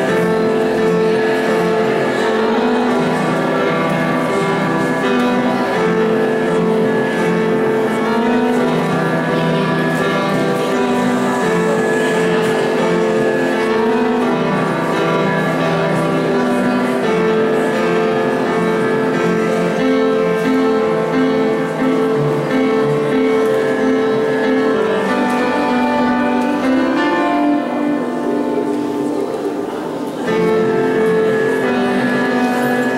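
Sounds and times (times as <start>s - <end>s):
solo piano playing: 0.0s - 32.9s.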